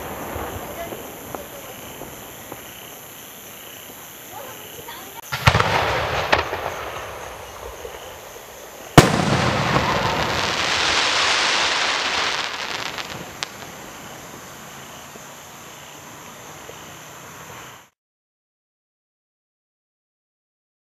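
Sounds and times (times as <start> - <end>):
dense firework crackling: 0.0 - 15.2
firework shell bang: 9.0 - 10.6.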